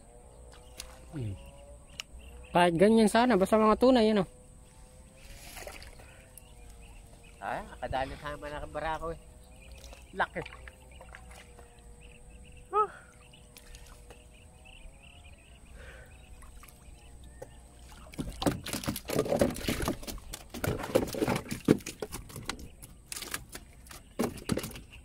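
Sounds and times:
water splashing and sloshing: 0.4s - 2.0s, 4.8s - 14.7s, 15.3s - 25.0s
fish flapping in water: 17.8s - 25.0s.

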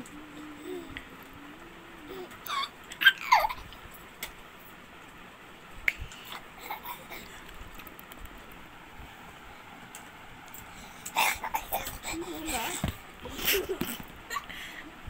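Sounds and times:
baby squealing and babbling: 2.1s - 3.7s.

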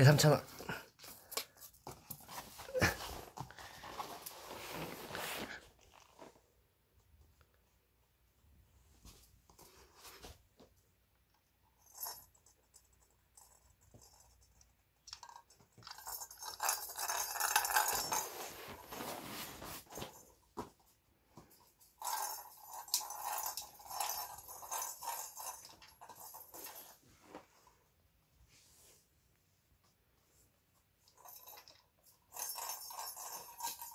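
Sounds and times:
ball rattling in plastic toy: 11.8s - 18.5s, 21.8s - 27.0s, 31.1s - 33.9s.

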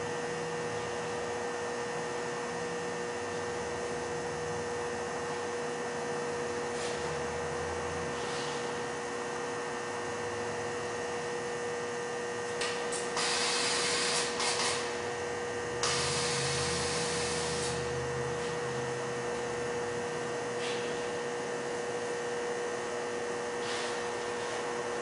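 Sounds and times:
steady hum: 0.0s - 25.0s
compressed air hissing: 13.2s - 14.8s.

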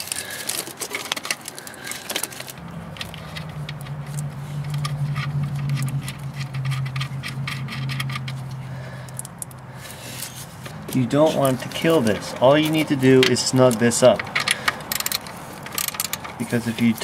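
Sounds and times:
low hum: 2.5s - 11.0s
small metal clicks and taps: 9.0s - 9.7s, 12.1s - 17.0s.

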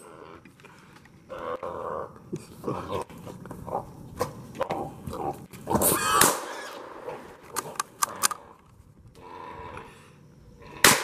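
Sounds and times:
hog squealing loudly: 5.8s - 6.8s
sharp clicks: 7.5s - 8.4s.

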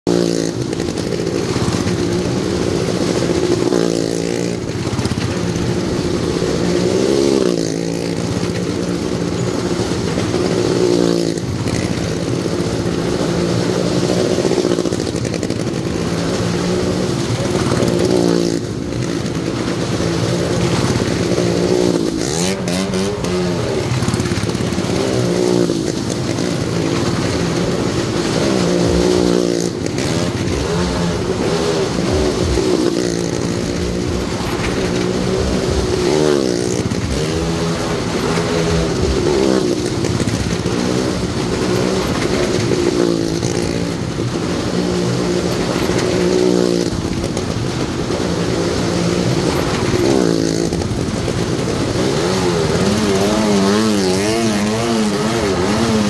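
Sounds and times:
motorcycle engines passing: 0.0s - 56.0s.

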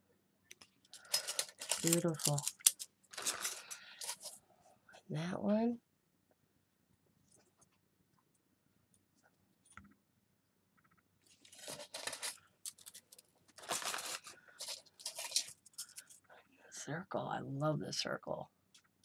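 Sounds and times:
metal pieces sliding on paper: 1.0s - 2.0s, 13.6s - 16.2s.

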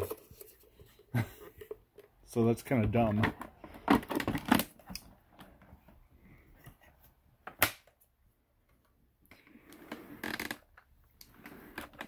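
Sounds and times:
rustling and scraping: 0.0s - 2.2s.

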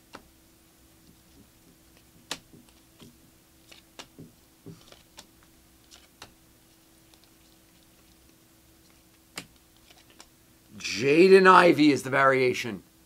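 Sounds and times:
faint steady hum: 0.0s - 13.0s
cards clicking as flipped: 0.1s - 0.3s, 1.3s - 6.4s, 7.1s - 10.3s.

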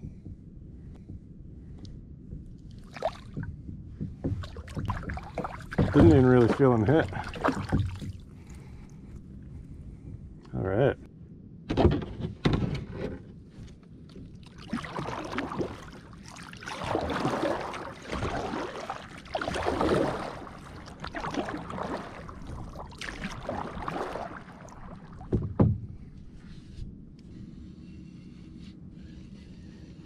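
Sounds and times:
paddle strokes swishing through water: 2.7s - 8.8s, 13.6s - 30.0s.

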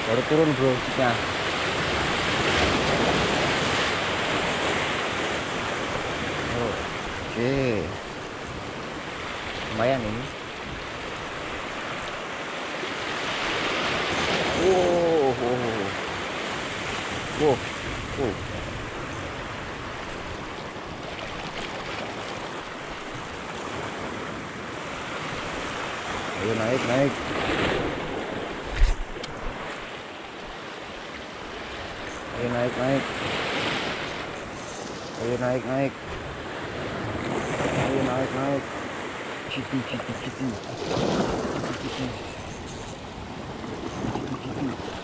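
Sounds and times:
sea waves surging against rocks: 0.0s - 45.0s
wind on microphone: 27.1s - 29.9s, 40.1s - 45.0s.

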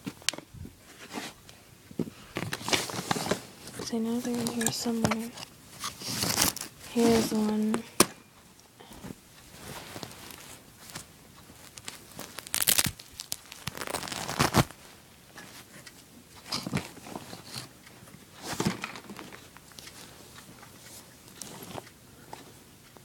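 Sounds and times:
fabric rustling and crinkling: 2.4s - 7.9s, 8.9s - 15.7s.

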